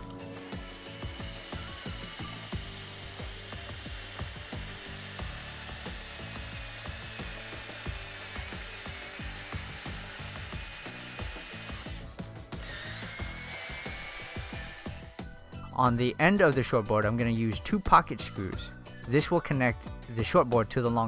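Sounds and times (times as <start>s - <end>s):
drill bit clicking as it cuts: 0.0s - 15.0s
cordless drill whirring: 0.0s - 15.2s.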